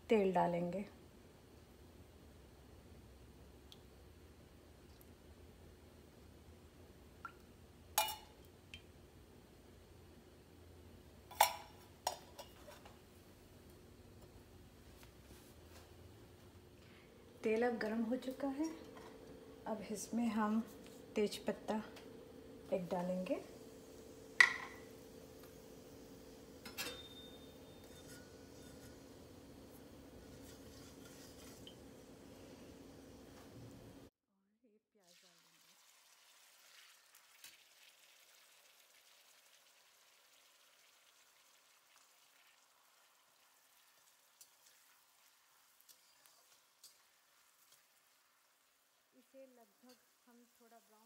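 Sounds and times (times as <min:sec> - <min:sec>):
low steady hum: 0:00.0 - 0:34.1
metal knocks on a wok: 0:24.4 - 0:24.8
light scrapes: 0:30.2 - 0:31.7.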